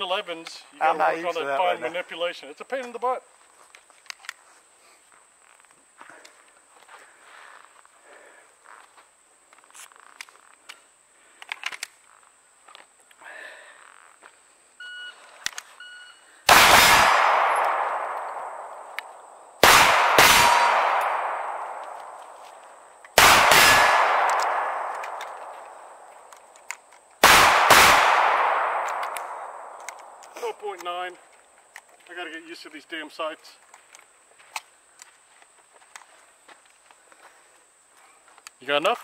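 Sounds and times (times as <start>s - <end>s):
pistol shots: 16.5s - 22.5s, 23.1s - 30.4s.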